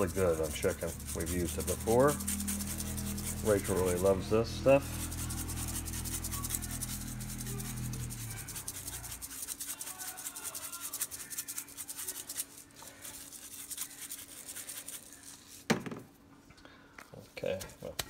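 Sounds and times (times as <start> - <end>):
spice shaker rattling: 0.0 - 4.0, 4.9 - 15.6
low steady hum: 0.0 - 9.5.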